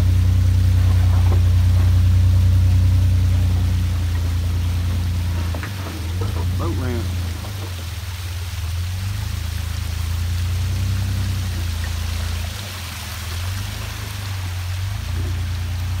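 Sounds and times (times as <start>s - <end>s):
creek water running over rocks: 0.0s - 16.0s
engine droning: 0.0s - 16.0s.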